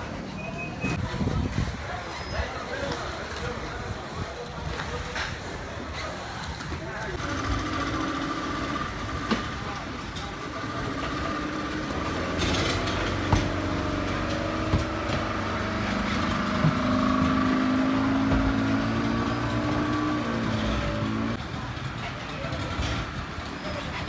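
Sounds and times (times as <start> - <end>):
outboard motors revving: 7.2 - 21.7.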